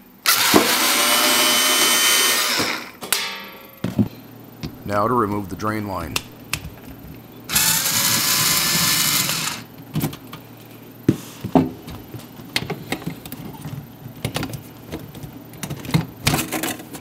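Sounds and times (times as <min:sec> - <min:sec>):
power driver running: 0:00.0 - 0:03.0, 0:07.5 - 0:09.8.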